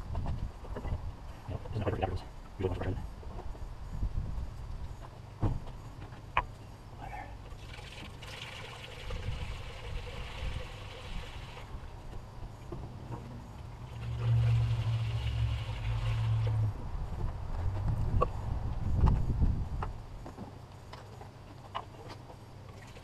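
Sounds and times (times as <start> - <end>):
low hum: 6.4 - 20.2
liquid trickling into funnel: 7.6 - 11.8, 13.8 - 16.7.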